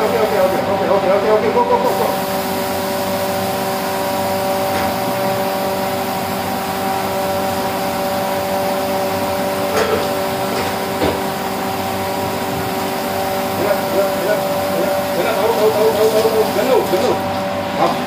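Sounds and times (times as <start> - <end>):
spray gun hiss: 0.0 - 0.8, 1.8 - 4.6.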